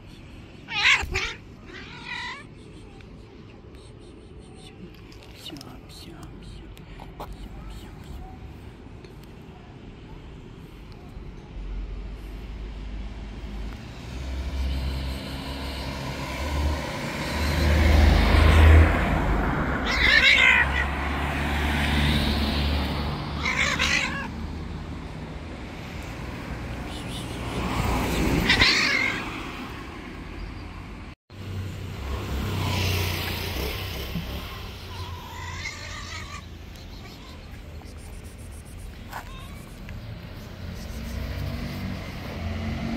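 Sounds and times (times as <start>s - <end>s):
cat crying out angrily: 0.6s - 2.5s, 19.8s - 21.1s, 23.3s - 24.4s, 28.4s - 29.4s, 34.8s - 37.5s.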